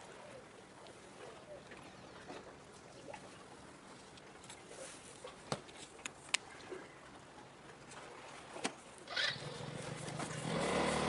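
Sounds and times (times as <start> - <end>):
low engine hum: 9.1 - 11.0.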